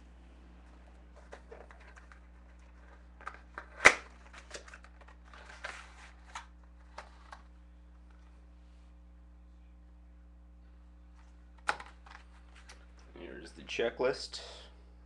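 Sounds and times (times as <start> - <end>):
packaging rustling: 1.1 - 7.5.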